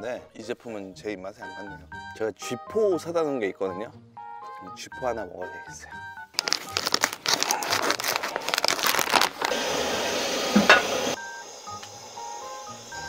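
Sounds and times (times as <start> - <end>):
dense crackling: 6.4 - 9.6
even hiss: 9.5 - 13.0.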